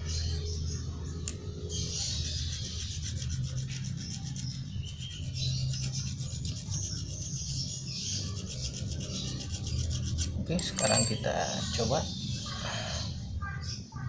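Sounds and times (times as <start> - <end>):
hand file rasping on metal: 2.3 - 10.4.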